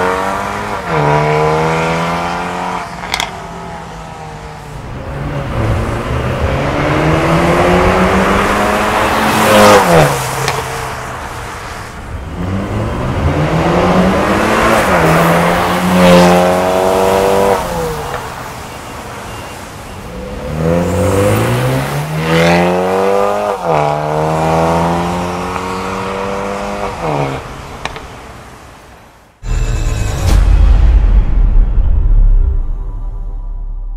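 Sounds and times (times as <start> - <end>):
car engine revving: 4.8 - 11.0.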